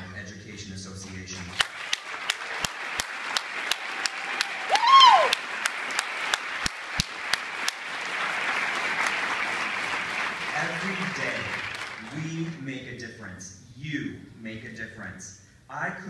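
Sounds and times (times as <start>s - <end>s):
audience applause: 1.5s - 12.5s
person cheering: 3.9s - 5.5s.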